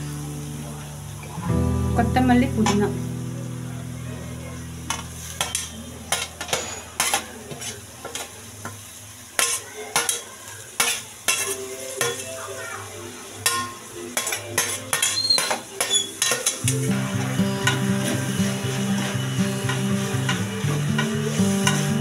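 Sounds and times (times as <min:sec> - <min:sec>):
onions and tomatoes sizzling: 0:00.0 - 0:22.0
steel spoon scraping steel plate: 0:05.4 - 0:07.8, 0:14.2 - 0:16.6.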